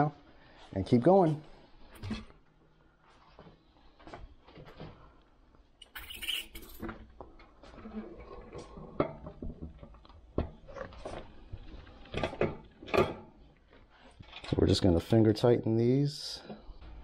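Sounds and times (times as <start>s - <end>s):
brief metal scrape: 5.9s - 6.8s.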